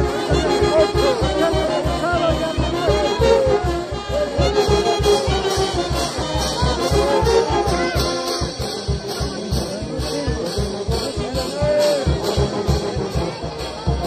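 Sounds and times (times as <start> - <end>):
brass band playing: 0.0 - 14.0
driving drum beat: 0.0 - 14.0.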